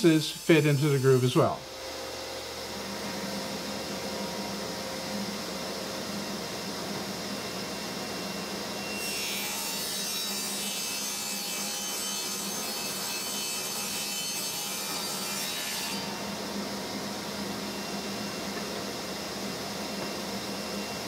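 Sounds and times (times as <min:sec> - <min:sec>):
saw cutting wood: 0:00.0 - 0:01.6, 0:08.8 - 0:16.5
table saw motor hum: 0:00.0 - 0:21.0.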